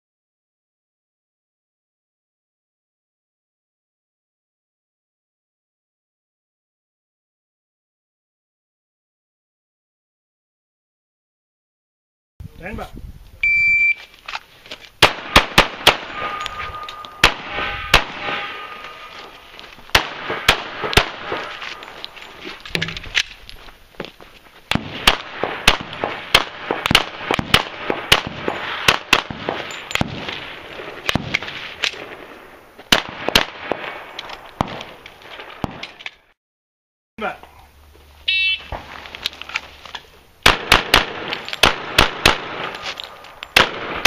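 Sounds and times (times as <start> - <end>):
shot timer beep: 13.4 - 14.0
rapid pistol shots: 15.0 - 19.0, 19.9 - 21.6, 24.7 - 31.4, 32.9 - 34.0, 40.4 - 42.8, 43.6 - 44.0.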